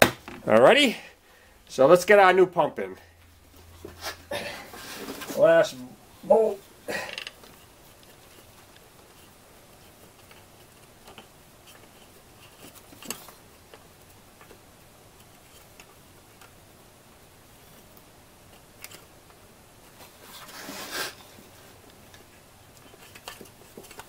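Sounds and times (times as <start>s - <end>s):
scraping rustle: 3.4s - 6.7s, 7.3s - 16.0s, 19.8s - 24.0s.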